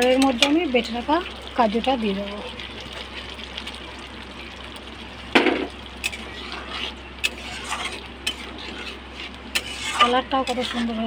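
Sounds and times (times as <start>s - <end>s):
masala sizzling in a pan: 0.0s - 11.0s.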